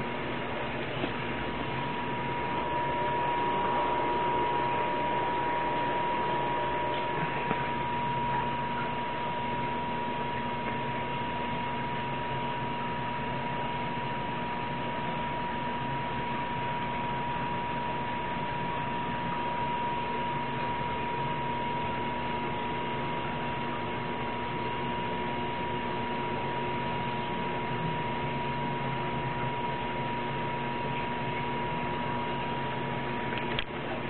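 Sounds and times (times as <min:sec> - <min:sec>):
aquarium filter hiss and hum: 0:00.0 - 0:34.0
constant high whine: 0:00.0 - 0:34.0.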